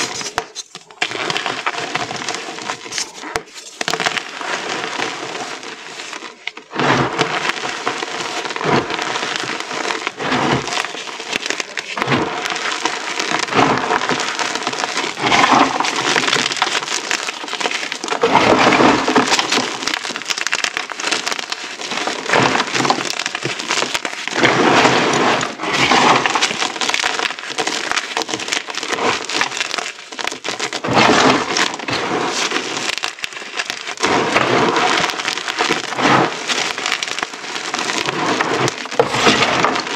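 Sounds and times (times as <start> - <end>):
chalk pieces pattering: 0.0 - 1.0.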